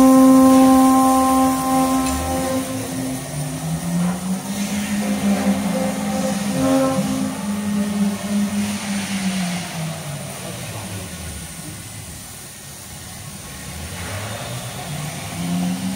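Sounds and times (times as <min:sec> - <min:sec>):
cnc router machine hum: 0:00.0 - 0:11.4.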